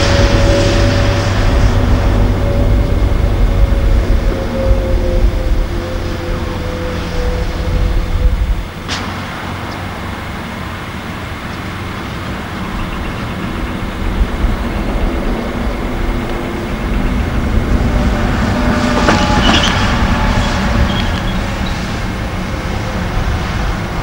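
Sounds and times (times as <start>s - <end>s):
truck diesel engine rumbling: 0.0s - 24.0s.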